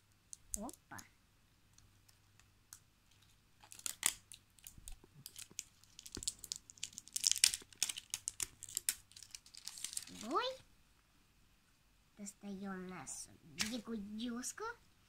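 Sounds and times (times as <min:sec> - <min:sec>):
plastic wrapping crackling and tearing: 0:03.1 - 0:10.6.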